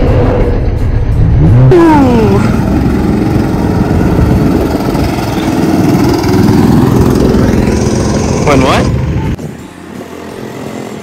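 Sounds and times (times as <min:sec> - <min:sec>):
go-kart engines passing: 0:02.3 - 0:11.0.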